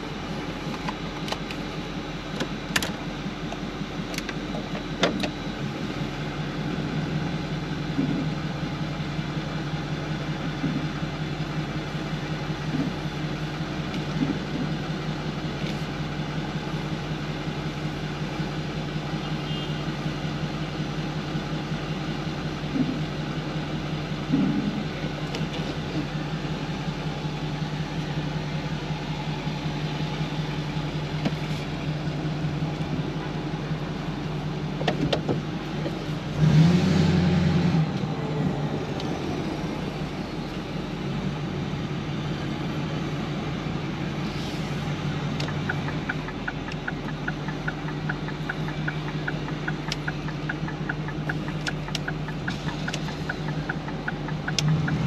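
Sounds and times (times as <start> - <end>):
car engine idling: 0.0 - 55.0
sharp clicks: 45.4 - 55.0.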